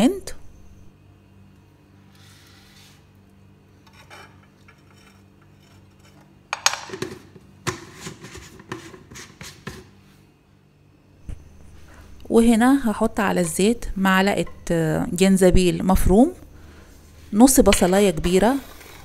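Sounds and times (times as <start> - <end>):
metal spoon scraping frying pan: 3.8 - 6.4.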